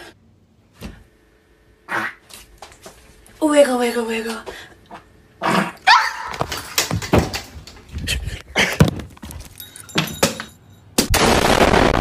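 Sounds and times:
sharp knocks and thumps: 0:06.3 - 0:07.9
loud explosion: 0:11.1 - 0:12.0.

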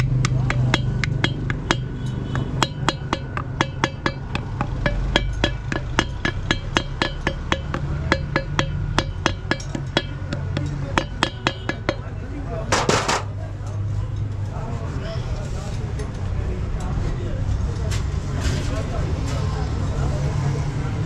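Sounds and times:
hammer tapping on steel wheel hub: 0:00.0 - 0:13.3.

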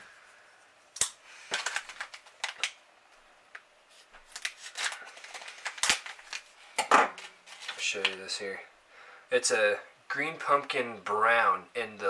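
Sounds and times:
plastic package crinkling: 0:01.4 - 0:02.8, 0:04.2 - 0:08.2.

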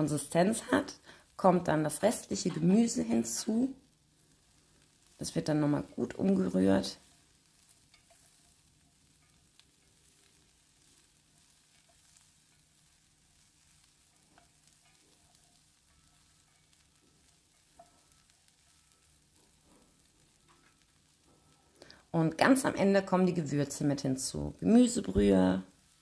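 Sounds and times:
vegetables sizzling in pan: 0:00.0 - 0:26.0
utensil clicking while stirring: 0:07.7 - 0:08.6.

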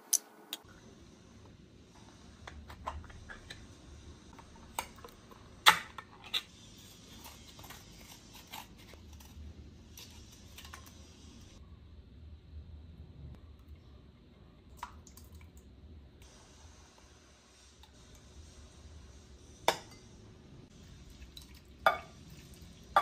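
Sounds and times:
low steady hum: 0:00.4 - 0:23.0.

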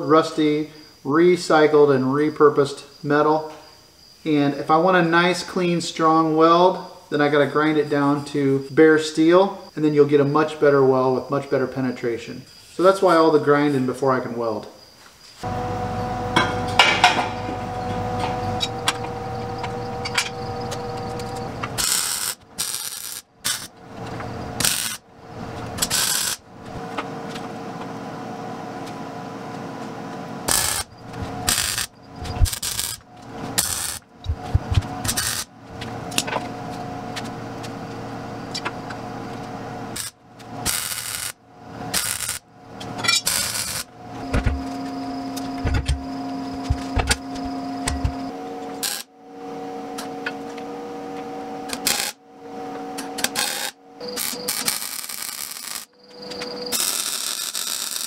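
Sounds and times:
steady background hum: 0:00.0 - 0:58.0
steel knocks: 0:16.3 - 0:17.6.

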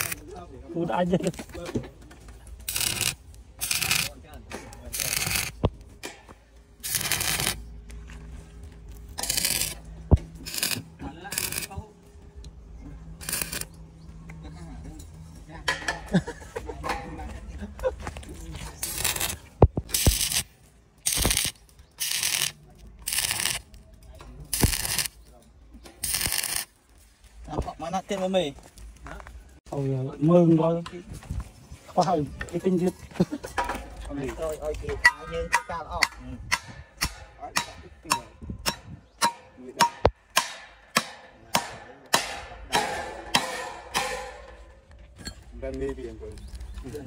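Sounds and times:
hand tool rasping strokes: 0:02.6 - 0:04.1, 0:04.9 - 0:05.6, 0:06.8 - 0:07.6, 0:09.1 - 0:09.8, 0:10.4 - 0:11.8, 0:13.2 - 0:13.7, 0:18.8 - 0:23.7, 0:26.0 - 0:26.7
tool striking repeatedly: 0:18.8 - 0:23.6, 0:24.5 - 0:25.2, 0:35.0 - 0:44.9.

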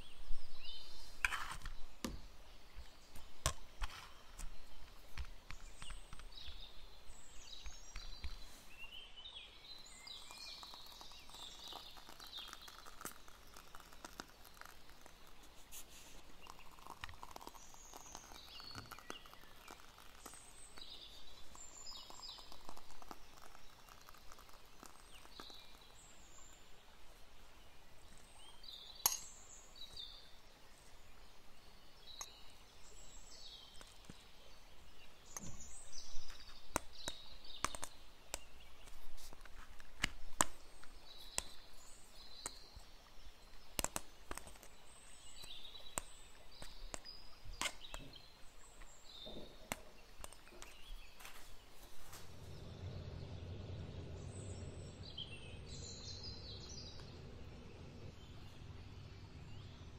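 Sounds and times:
small birds chirping: 0:00.0 - 0:59.9
low hum: 0:51.9 - 0:59.9.

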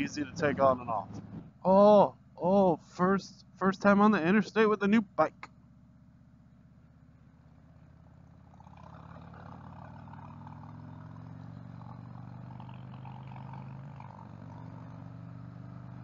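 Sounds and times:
motorcycle engine running: 0:05.4 - 0:16.0.

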